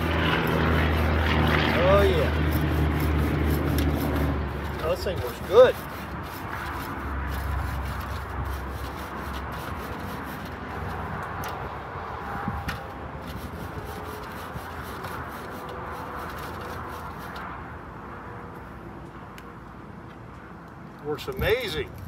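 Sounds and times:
grill scraper scraping metal grate: 0.0s - 11.7s, 12.5s - 17.5s.

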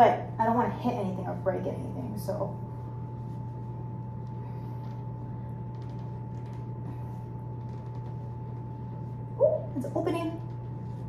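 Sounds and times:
air handling hum: 0.0s - 11.0s
thin constant whine: 0.0s - 11.0s
towel rustling: 10.0s - 11.0s.

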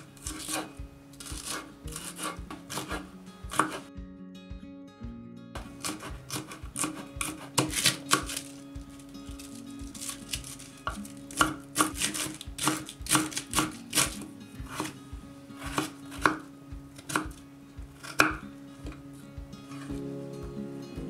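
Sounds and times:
knife chopping on wooden board: 0.0s - 3.9s, 5.6s - 8.5s, 9.4s - 15.0s, 15.6s - 19.0s.

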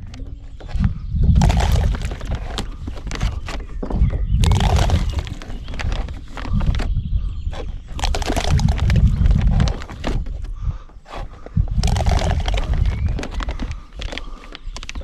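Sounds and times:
low buffeting rumble: 0.2s - 14.4s
bait clattering and crackling: 1.4s - 3.5s, 4.4s - 6.8s, 7.9s - 10.3s, 11.8s - 15.0s.

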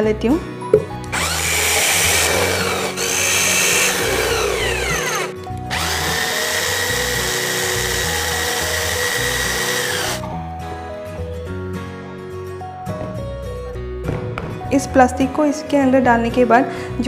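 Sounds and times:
electric drill boring: 1.1s - 10.2s.

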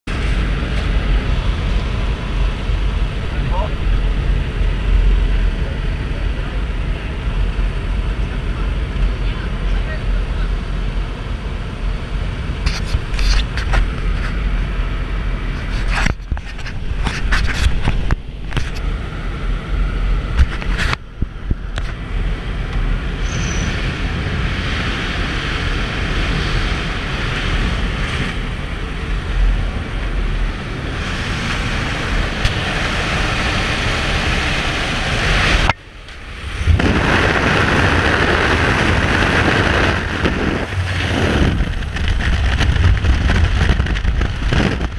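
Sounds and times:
airplane engine: 0.1s - 44.9s
freefall wind rush: 0.1s - 44.9s
air rushing through open door: 30.6s - 42.6s.

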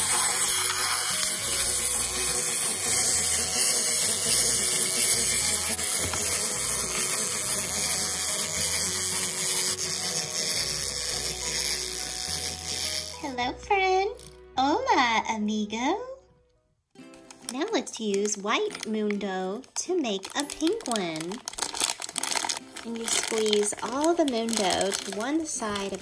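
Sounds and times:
wind-up toy gears whirring: 0.0s - 14.4s, 20.2s - 26.0s.

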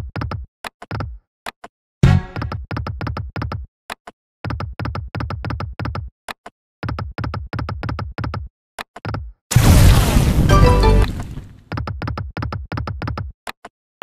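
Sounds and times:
loud game sound burst: 9.5s - 11.5s.

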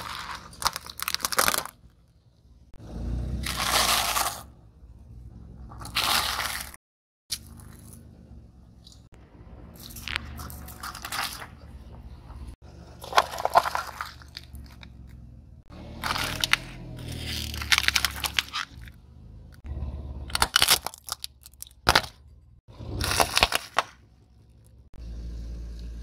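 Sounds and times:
candies and wafers crunching: 0.0s - 2.0s, 5.8s - 8.0s, 9.8s - 11.6s, 13.0s - 15.1s, 15.9s - 19.0s, 20.3s - 24.0s
car tyre crushing objects: 0.0s - 25.0s.

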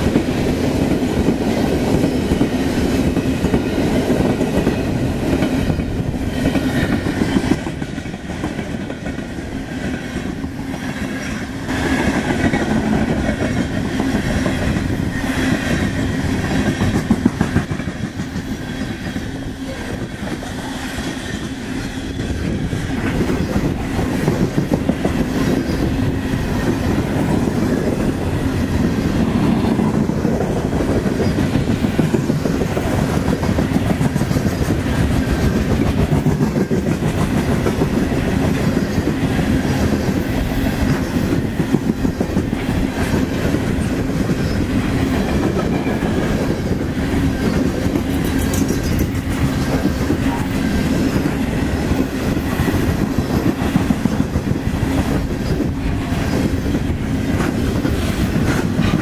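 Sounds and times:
freight train rumbling past: 0.0s - 59.0s
wheels clicking over rail joints: 22.4s - 59.0s.

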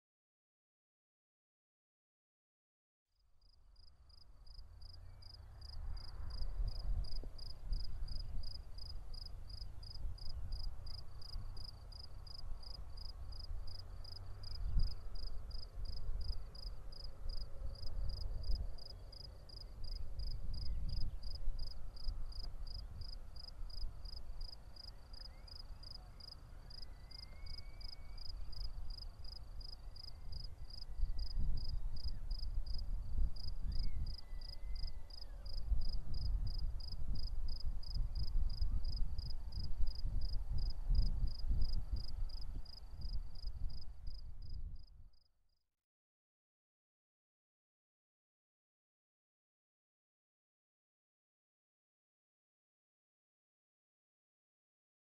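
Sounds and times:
cricket chirping: 3.4s - 45.3s.

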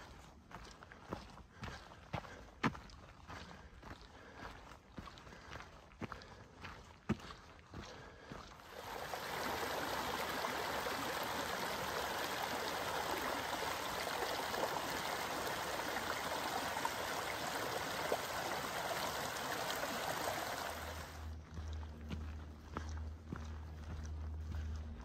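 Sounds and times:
stream rushing: 8.6s - 21.3s.

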